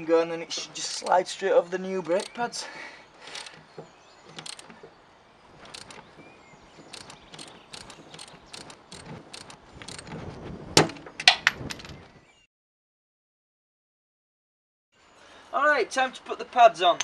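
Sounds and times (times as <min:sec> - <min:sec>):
ratchet tool clicking: 0:02.1 - 0:02.4, 0:03.3 - 0:03.6, 0:04.3 - 0:04.8, 0:05.6 - 0:06.0, 0:06.8 - 0:10.1.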